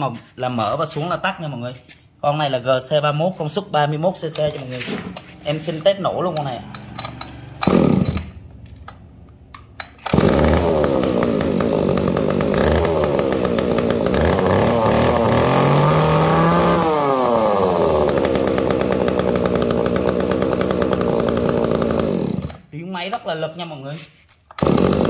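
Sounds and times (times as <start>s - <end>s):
chainsaw engine idling and revving: 5.2s - 8.5s, 9.8s - 22.7s, 24.6s - 25.0s.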